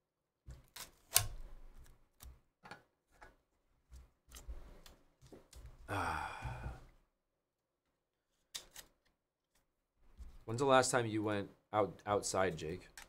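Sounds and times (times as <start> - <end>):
man sighing ahh: 5.9 - 7.0.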